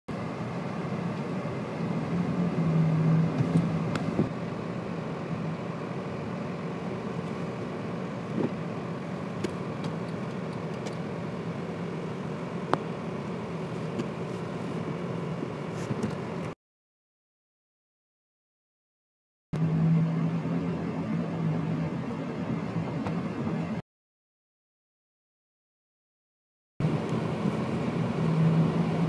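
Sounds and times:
vehicle running noise from inside: 0:00.1 - 0:16.6, 0:19.6 - 0:23.8, 0:26.8 - 0:29.0
low hum: 0:19.6 - 0:23.8.

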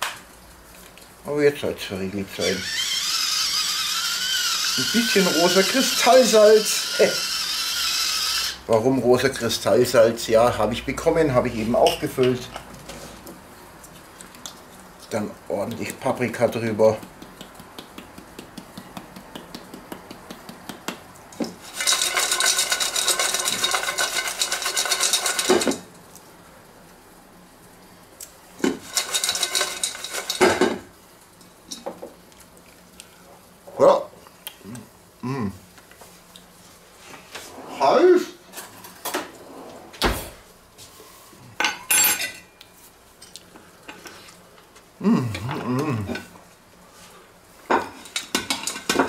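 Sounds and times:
fries rattling against metal bowl: 0:02.3 - 0:08.5, 0:15.0 - 0:25.9, 0:28.6 - 0:31.8, 0:47.8 - 0:49.0
spice shaker ticking: 0:16.9 - 0:25.5
fork clattering in metal bowl: 0:21.7 - 0:25.8, 0:28.6 - 0:30.8.

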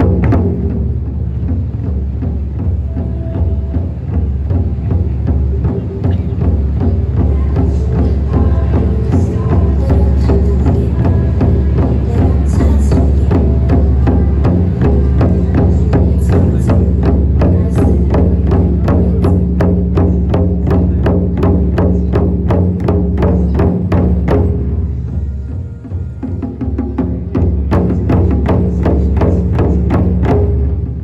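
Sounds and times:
low drone: 0:00.0 - 0:22.2
large drums beating: 0:00.0 - 0:31.0.

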